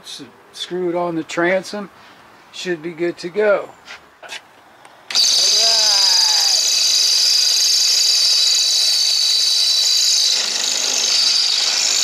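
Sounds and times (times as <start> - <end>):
cordless drill whining through metal: 5.1 - 12.0.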